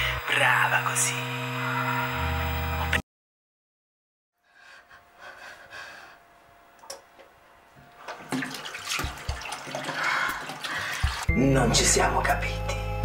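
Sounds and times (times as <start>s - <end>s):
water running from tap into sink: 8.1s - 11.3s.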